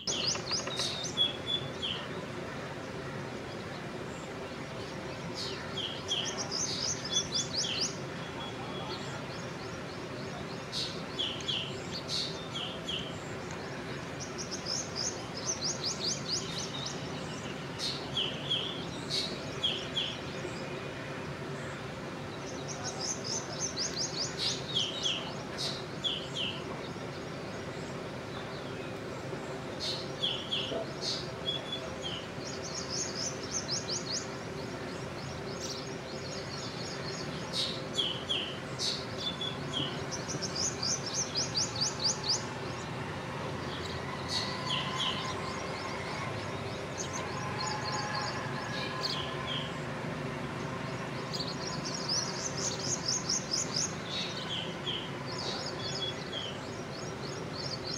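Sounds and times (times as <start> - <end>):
bird calling with trills: 0.0 - 3.4
steady low hum: 0.0 - 57.9.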